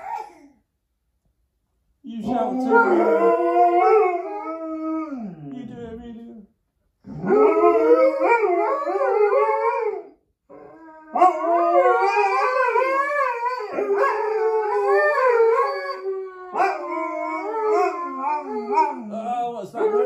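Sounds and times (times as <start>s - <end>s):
dogs howling: 2.2s - 5.4s, 7.1s - 19.1s, 19.7s - 20.0s.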